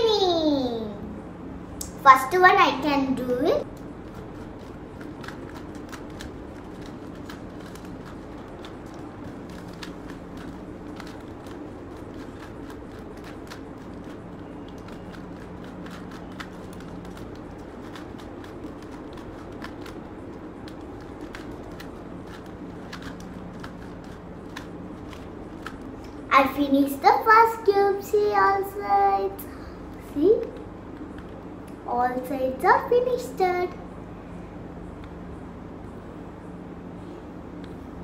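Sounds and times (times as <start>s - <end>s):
faint steady hum: 0.0s - 38.0s
plastic puzzle cube clicking: 20.6s - 25.8s.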